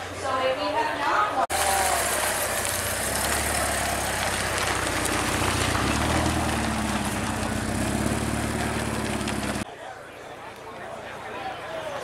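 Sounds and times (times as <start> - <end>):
car engine running at low revs: 1.7 - 9.6.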